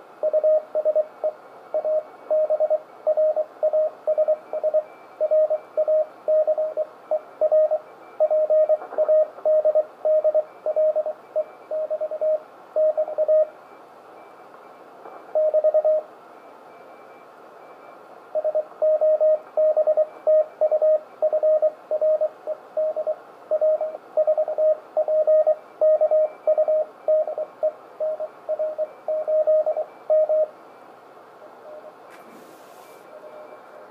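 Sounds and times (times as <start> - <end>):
radio band noise hiss: 30.6 - 33.9.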